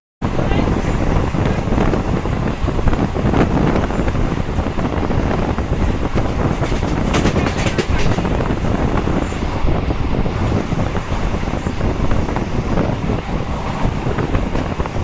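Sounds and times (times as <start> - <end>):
train wheels rumbling on rails: 0.2 - 15.0
sharp clacks of train wheels: 5.2 - 9.4.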